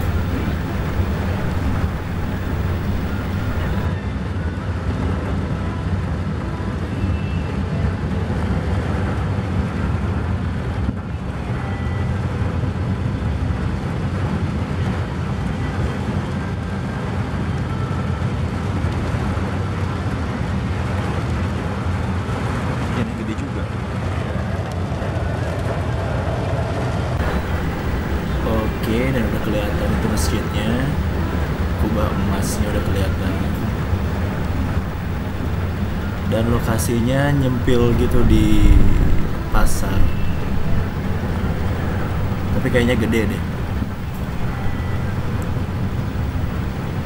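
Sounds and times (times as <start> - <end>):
car interior rumble on wet road: 0.0 - 3.9, 27.2 - 47.0.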